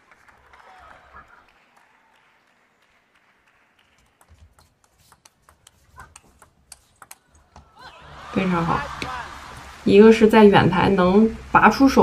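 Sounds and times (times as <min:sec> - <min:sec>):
table tennis ball clicks: 0:04.2 - 0:07.7.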